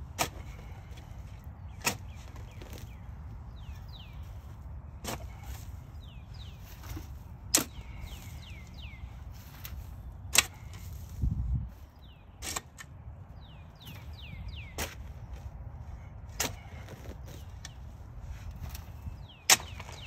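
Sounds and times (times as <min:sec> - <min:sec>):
shovel clanking into soil: 0:00.1 - 0:01.2, 0:01.8 - 0:02.9, 0:05.0 - 0:05.8, 0:06.6 - 0:08.4, 0:09.3 - 0:11.2, 0:12.4 - 0:13.0, 0:14.7 - 0:15.4, 0:16.3 - 0:17.8, 0:18.5 - 0:20.0.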